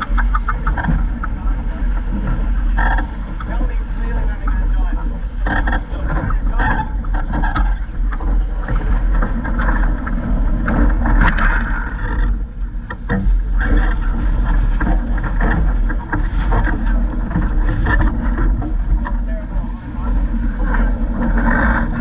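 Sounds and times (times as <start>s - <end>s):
chop slapping hull: 0.0s - 19.3s
water rushing along hull: 0.0s - 22.0s
wind buffeting microphone: 0.0s - 22.0s.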